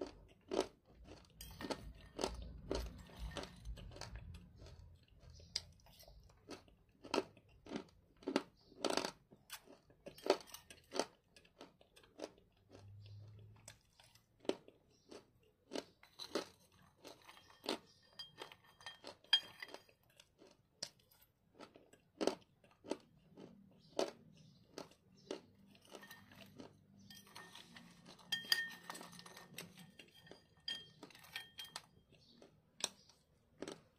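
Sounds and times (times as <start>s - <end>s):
metal spoon clinking in bowl: 17.3s - 19.9s, 27.1s - 32.0s.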